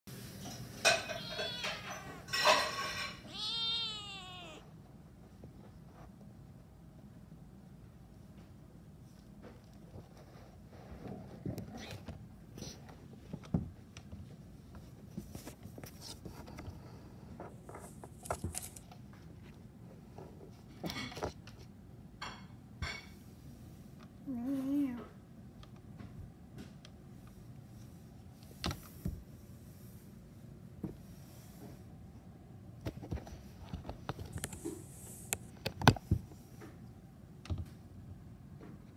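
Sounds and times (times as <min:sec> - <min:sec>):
kitten meowing: 0:00.9 - 0:04.7.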